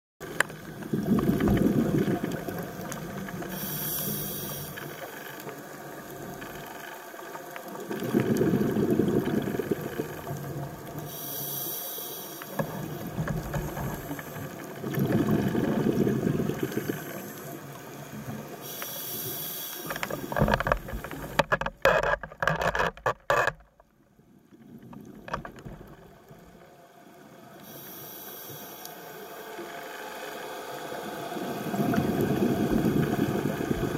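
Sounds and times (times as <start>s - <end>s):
bubbling gurgle on exhale: 0.6s - 4.7s, 7.8s - 11.2s, 12.6s - 17.4s, 31.4s - 33.9s
regulator hiss on inhale: 3.4s - 5.4s, 11.0s - 14.8s, 16.0s - 21.3s, 27.5s - 33.1s
crackling knocks: 12.6s - 14.4s, 19.9s - 23.9s, 24.9s - 26.1s.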